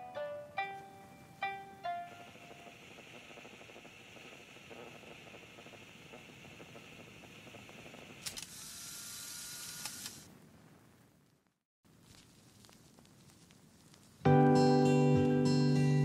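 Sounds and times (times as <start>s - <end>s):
fingers rustling paper pages: 11.9s - 14.2s.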